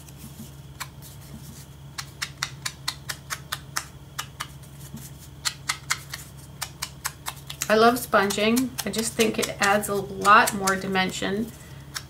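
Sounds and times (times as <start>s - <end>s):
sponge dabbing ink on card: 7.6s - 11.2s.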